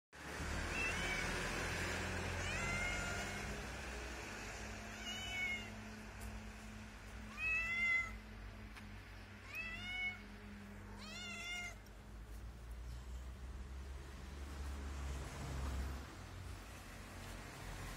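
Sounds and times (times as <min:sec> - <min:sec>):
cat meowing: 0:00.7 - 0:01.4, 0:02.3 - 0:03.6, 0:04.9 - 0:05.8, 0:07.3 - 0:08.2, 0:09.4 - 0:11.9.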